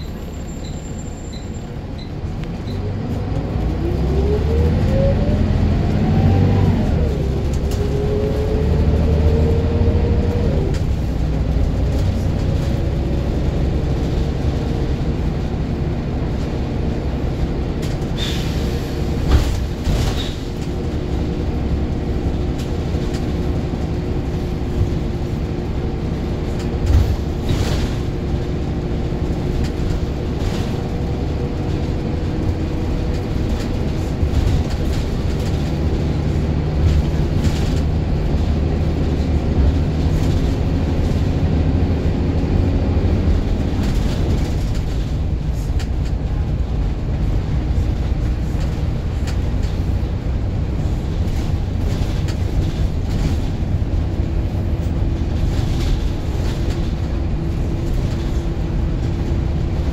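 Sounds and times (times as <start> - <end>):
bus engine running: 0.0 - 59.9
bus body knocks and rattles: 19.0 - 59.9.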